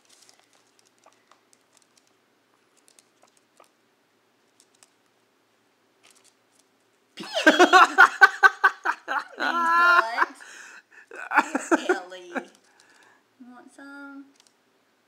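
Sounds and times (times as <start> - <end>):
woman laughing: 7.2 - 12.6
faint clicks: 14.3 - 14.6.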